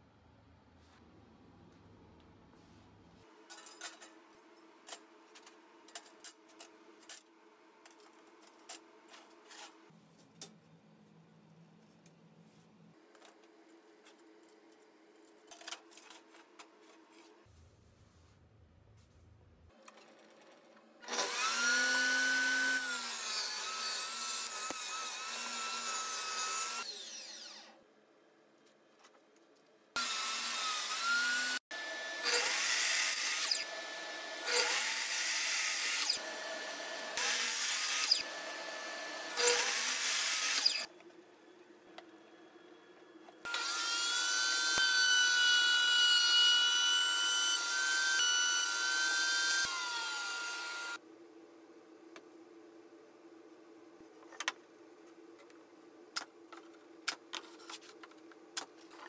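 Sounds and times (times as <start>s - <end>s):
saw motor whining: 21.0s - 27.8s, 30.0s - 40.9s, 43.5s - 51.0s
miter saw short cuts: 30.0s - 40.9s.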